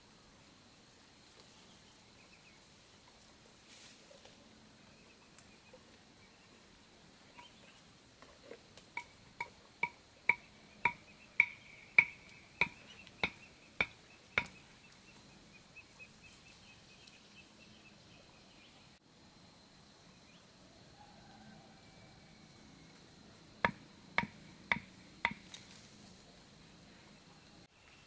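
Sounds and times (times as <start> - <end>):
sharp ringing knocks: 9.0 - 14.6.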